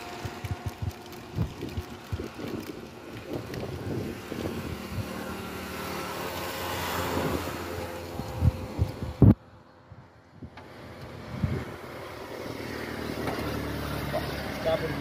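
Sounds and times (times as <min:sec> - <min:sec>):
drink shaken in steel shaker: 0:00.0 - 0:04.4.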